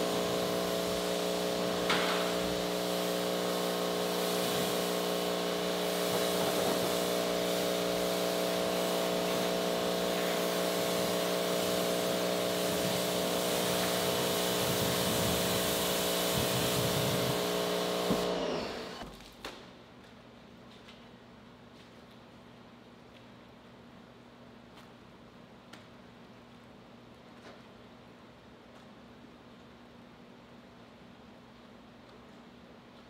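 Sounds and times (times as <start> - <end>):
water spray hissing: 0.0 - 18.3
pressure washer pump hum: 0.0 - 19.1.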